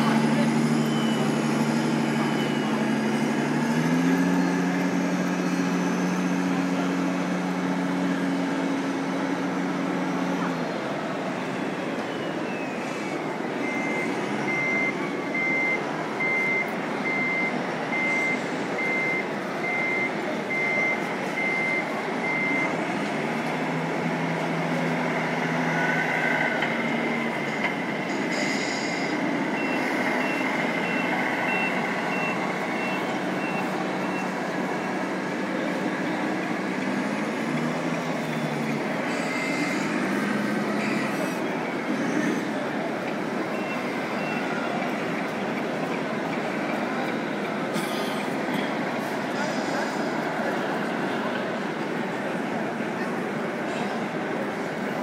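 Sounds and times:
reversing alarm beeps: 0.0 - 4.5, 12.1 - 22.8, 25.8 - 34.4, 38.1 - 42.4, 43.5 - 44.8
hubbub of busy hall: 0.0 - 55.0.

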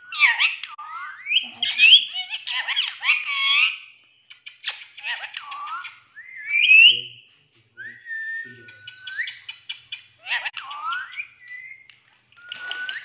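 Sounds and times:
parakeet talking: 0.1 - 3.9, 4.6 - 5.9, 8.2 - 11.4.

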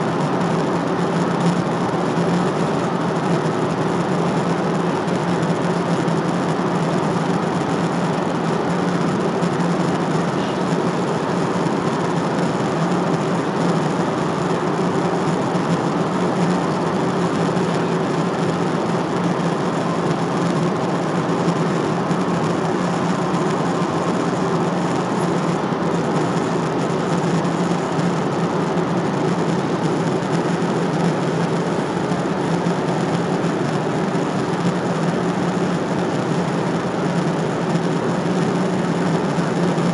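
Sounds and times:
airliner cabin noise: 0.0 - 39.9.

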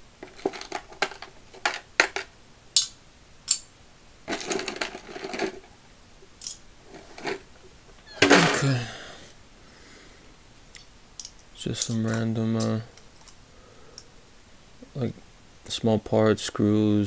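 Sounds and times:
parts rattling in tray: 0.1 - 2.3, 4.3 - 5.8, 6.4 - 9.0
metal parts clattering: 0.2 - 2.3, 4.3 - 5.8, 6.4 - 8.9
steel parts clinking in metal tray: 0.2 - 2.3, 4.3 - 5.7, 6.4 - 7.4.

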